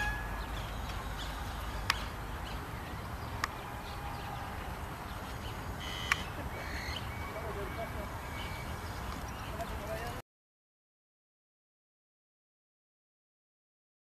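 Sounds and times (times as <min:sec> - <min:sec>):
bird chirps: 0:00.0 - 0:04.4, 0:05.0 - 0:10.1.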